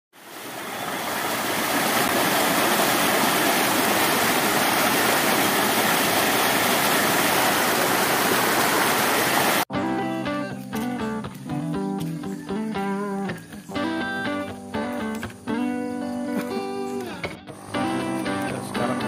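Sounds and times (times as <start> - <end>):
river rushing over boulders: 0.2 - 9.7
guitar music: 9.7 - 19.0.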